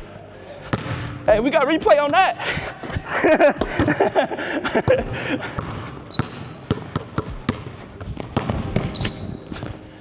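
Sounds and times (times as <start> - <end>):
basketball bouncing on wooden floor: 4.9 - 9.8
sneakers squeaking on floor: 5.6 - 10.0.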